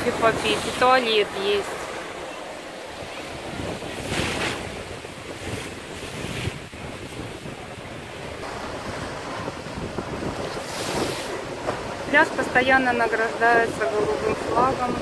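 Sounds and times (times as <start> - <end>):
wind rumbling on microphone: 0.0 - 15.0
waves washing on pebble beach: 8.4 - 13.8.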